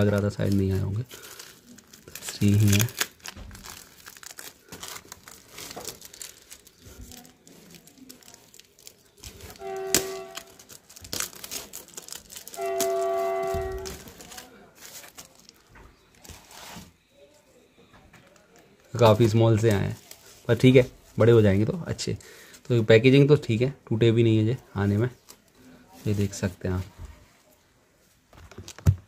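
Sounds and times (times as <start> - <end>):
cardboard and plastic tearing: 0.0 - 17.0.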